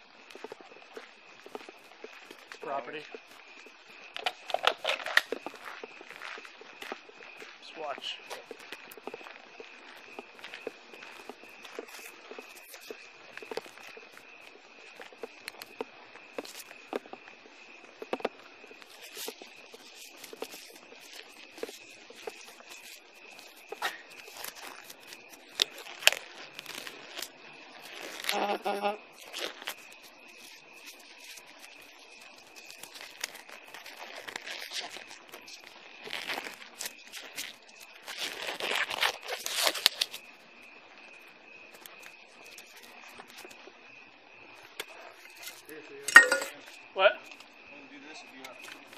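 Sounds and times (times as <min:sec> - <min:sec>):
crinkling and rustling: 0:00.0 - 0:40.3, 0:41.7 - 0:43.8, 0:44.5 - 0:47.5
faint high whine: 0:45.7 - 0:48.5
faint high-pitched tone: 0:46.1 - 0:46.6.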